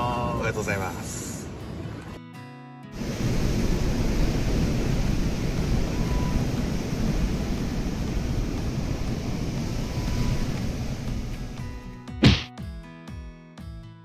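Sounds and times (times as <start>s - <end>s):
wind rumbling on microphone: 3.0s - 11.9s
sea surf: 3.0s - 12.0s.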